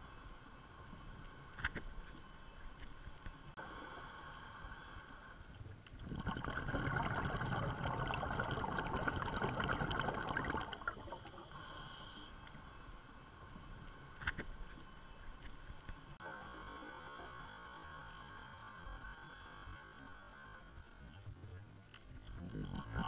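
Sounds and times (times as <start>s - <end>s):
faint underwater hiss: 0.0s - 23.0s
bubbling and crackling: 5.8s - 11.6s, 21.1s - 23.0s.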